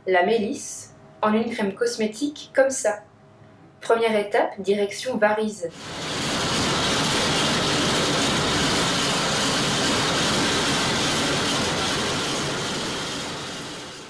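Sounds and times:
harvester running: 5.7 - 14.0.

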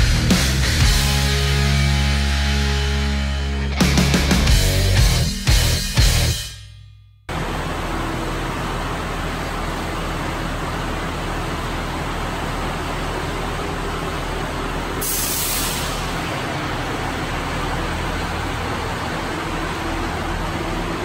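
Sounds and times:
diesel engine idling: 7.3 - 21.0
air brakes hissing: 14.9 - 16.4.

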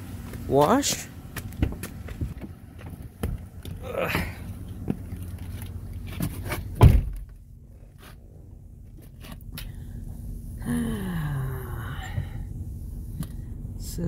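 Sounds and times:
shuffling and light knocks: 0.2 - 10.3
van door shutting with thud: 6.6 - 7.4.

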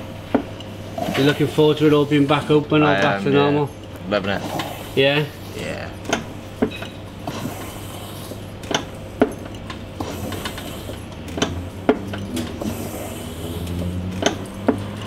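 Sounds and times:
steady low hum: 0.0 - 15.0
beer pump clicks and knocks: 6.0 - 7.4, 8.6 - 12.7, 13.7 - 15.0.

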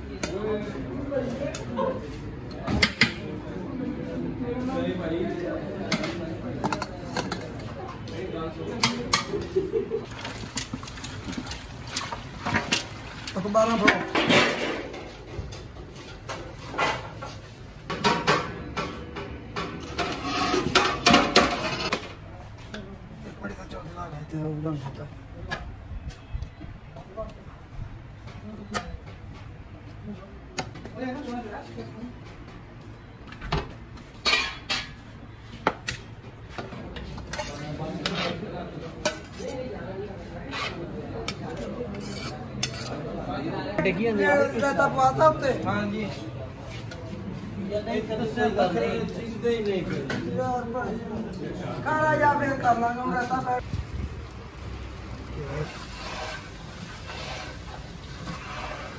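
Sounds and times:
cookware clattering and scraping: 8.8 - 22.1, 34.2 - 36.0, 36.6 - 39.6, 40.4 - 43.1.

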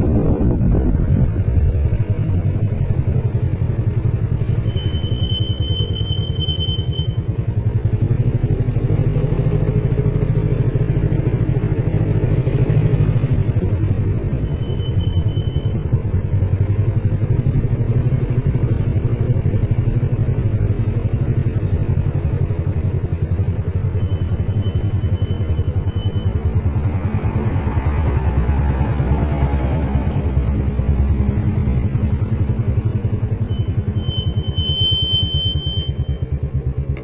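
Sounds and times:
motorcycle engine running: 0.0 - 37.0.

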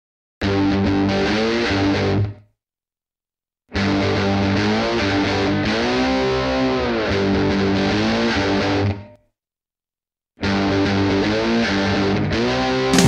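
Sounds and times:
electric guitar chords: 0.4 - 2.4, 3.8 - 9.0, 10.5 - 13.0.

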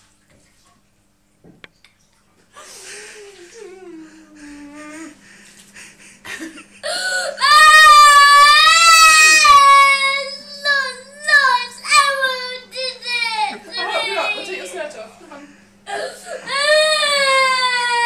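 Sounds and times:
girl crying: 6.8 - 14.7, 15.9 - 18.0.

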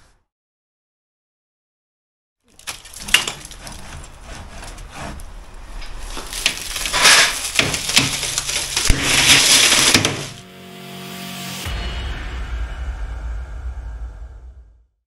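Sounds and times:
sharp cracks and knocks: 2.5 - 5.2, 5.8 - 10.4
plaster being broken out of wall: 2.5 - 10.4
rubble crumbling and falling: 2.5 - 10.4.

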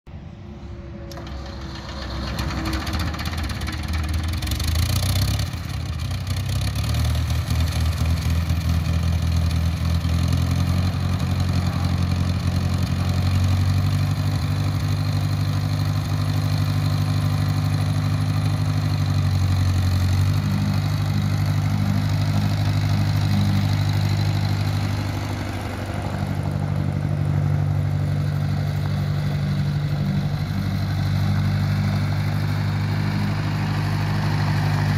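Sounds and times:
tractor engine running: 0.1 - 34.9.

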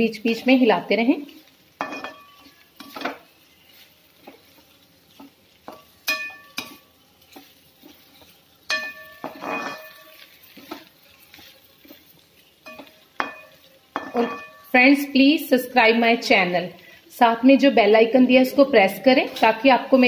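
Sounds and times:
faint sizzle: 0.0 - 20.0
spatula scraping frying pan: 1.2 - 14.8.

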